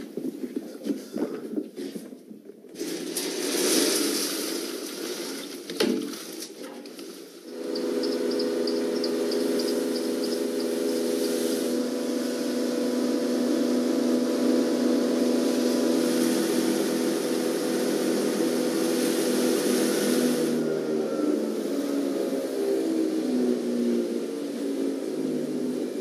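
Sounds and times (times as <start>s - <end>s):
light rapid ticking: 7.5s - 11.4s
electric mill motor hum: 7.5s - 20.3s.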